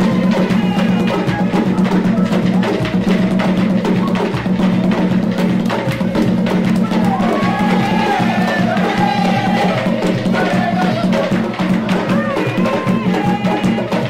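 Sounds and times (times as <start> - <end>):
hand drums fast rhythm: 0.0 - 14.0.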